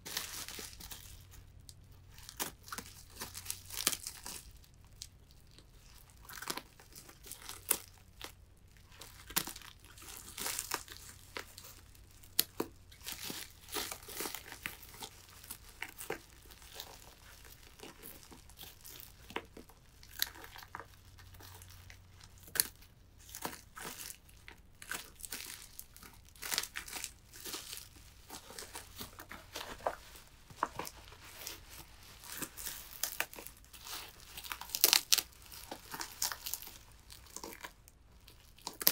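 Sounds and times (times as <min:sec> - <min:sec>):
plastic wrap crinkling and tearing: 0:00.0 - 0:38.9.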